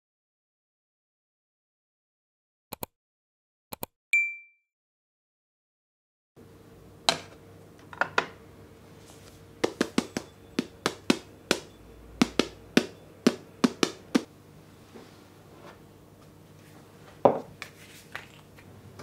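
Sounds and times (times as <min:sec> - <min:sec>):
faint steady hum: 0:06.4 - 0:19.0.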